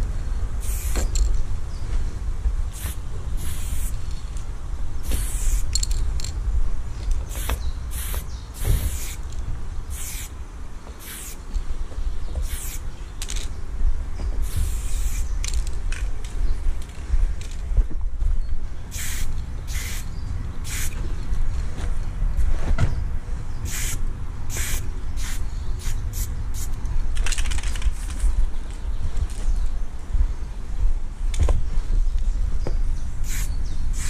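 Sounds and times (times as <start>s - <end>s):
steady low rumble: 0.0s - 34.0s
aerosol spray can hissing: 0.6s - 1.2s, 2.8s - 4.0s, 5.0s - 5.7s, 7.3s - 9.2s, 9.9s - 10.3s, 11.0s - 11.4s, 12.4s - 12.8s, 14.5s - 15.3s, 18.9s - 21.0s, 23.6s - 26.7s, 33.2s - 34.0s.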